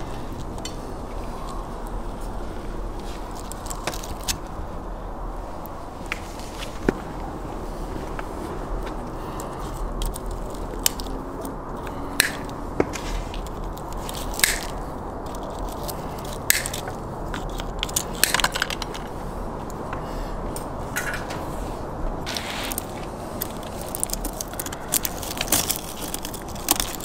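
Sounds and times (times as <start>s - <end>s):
background noise: 0.0s - 27.0s
pliers snipping wire: 9.4s - 19.1s, 22.3s - 27.0s
short scraping rustles: 21.1s - 23.1s.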